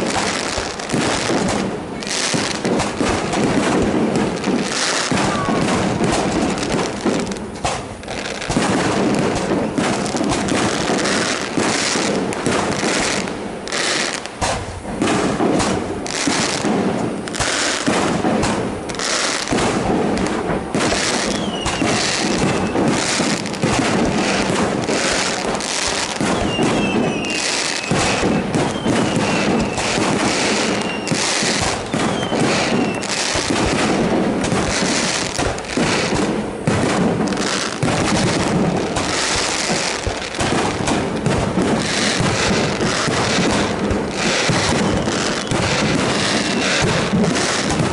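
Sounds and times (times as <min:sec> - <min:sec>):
falling firework whistles: 0:00.0 - 0:47.9
fireworks launches and bursts: 0:00.0 - 0:47.9.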